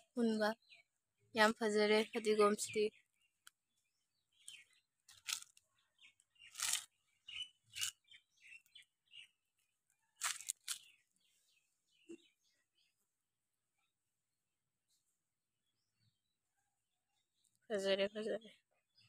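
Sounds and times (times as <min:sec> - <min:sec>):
dry leaves crunching and rustling: 0:05.1 - 0:05.6, 0:06.5 - 0:06.9, 0:10.2 - 0:10.9.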